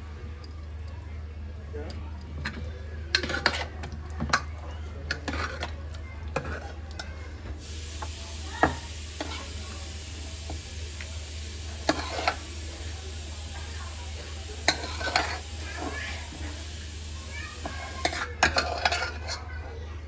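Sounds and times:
ladle scraping in a pot: 3.1s - 3.8s, 5.1s - 6.8s, 11.8s - 12.6s, 14.6s - 16.4s, 17.9s - 19.5s.

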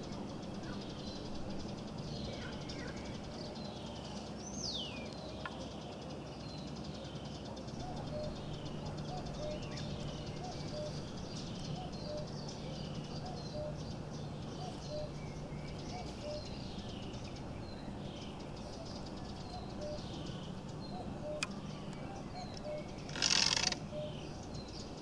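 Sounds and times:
steady low hum: 0.0s - 25.0s
wild birds chirping: 0.0s - 25.0s.

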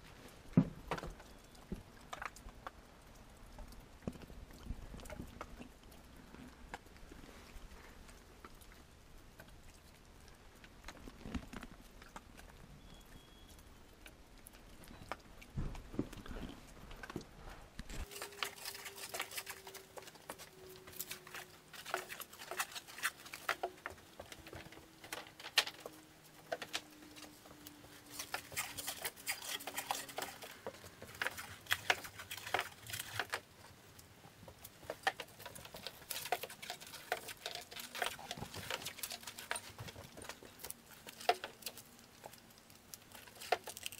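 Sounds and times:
dull thumps: 15.5s - 17.2s
stretch wrap crackling: 15.8s - 33.7s.

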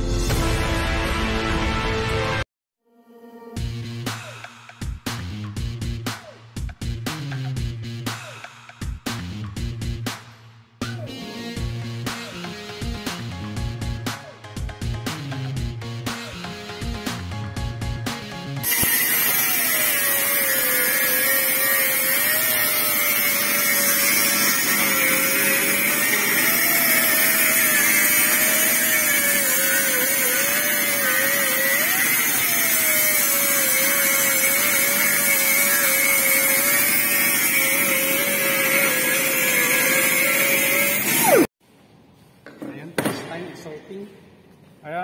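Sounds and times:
angle grinder grinding metal: 18.6s - 41.5s.

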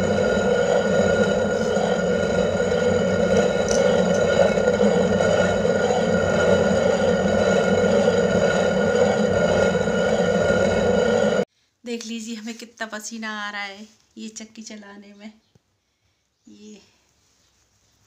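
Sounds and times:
stone grinding on stone: 0.0s - 11.4s.

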